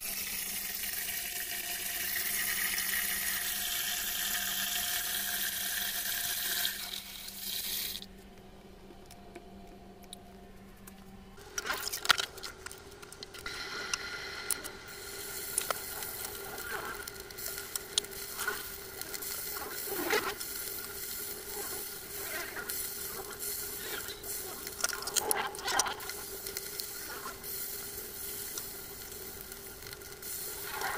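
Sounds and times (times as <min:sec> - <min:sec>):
bacon sizzling in frying pan: 0:14.5 - 0:30.9.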